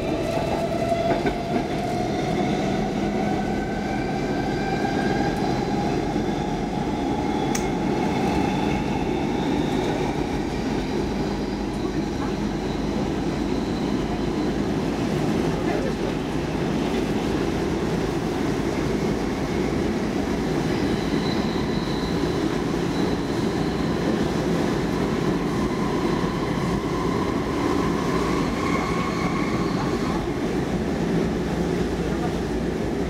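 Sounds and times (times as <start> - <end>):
rumble of train wheels on rails: 0.0 - 33.0
faint high squealing: 20.8 - 24.2, 25.0 - 30.2.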